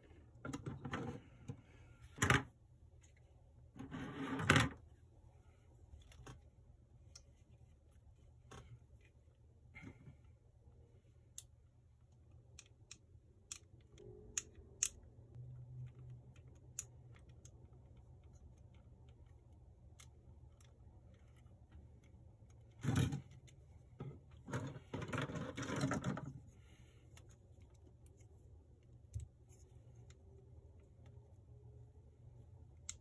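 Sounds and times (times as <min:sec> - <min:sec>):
plastic parts clicking and rattling: 0:15.8 - 0:28.2.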